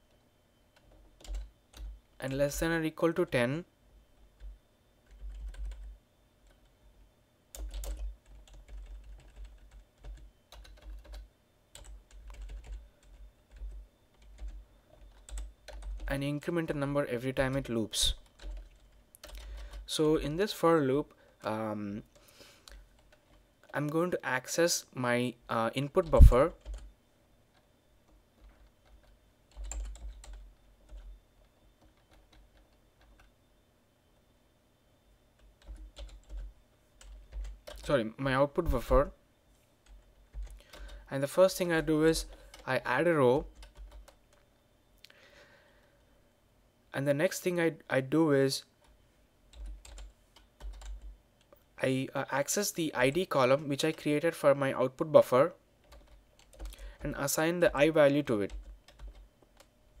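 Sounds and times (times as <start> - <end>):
keyboard typing: 0.7 - 2.4, 4.4 - 6.7, 7.5 - 16.1, 17.4 - 19.9, 25.9 - 26.9, 27.5 - 33.4, 35.4 - 38.0, 39.8 - 41.1, 41.7 - 42.8, 43.4 - 44.5, 48.8 - 51.6, 55.8 - 60.0
keyboard typing clicks: 7.5 - 16.1, 18.2 - 19.8, 43.5 - 44.5, 48.8 - 51.6, 55.8 - 56.8, 58.5 - 59.7.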